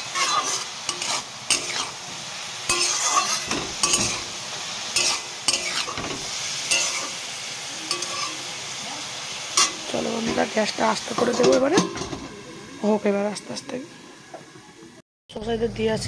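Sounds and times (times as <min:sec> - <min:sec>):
metal spatula scraping pan: 0:00.0 - 0:02.0, 0:02.6 - 0:07.2, 0:07.9 - 0:08.5
greens sizzling in hot oil: 0:00.0 - 0:15.0.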